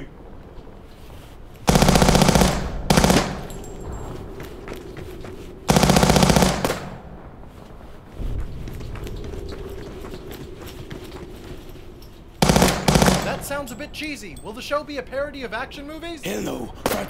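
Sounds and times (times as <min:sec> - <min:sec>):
submachine gun automatic bursts: 0:01.7 - 0:03.6, 0:05.7 - 0:07.0, 0:12.4 - 0:13.7.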